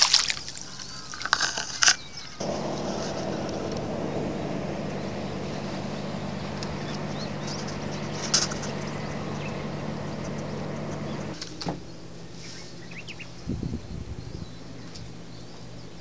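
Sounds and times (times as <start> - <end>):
engine drone: 2.4 - 11.4.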